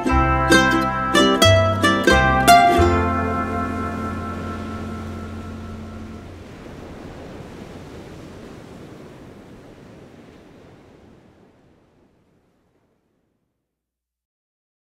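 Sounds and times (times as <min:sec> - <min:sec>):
ocean surf washing: 0:00.0 - 0:13.2.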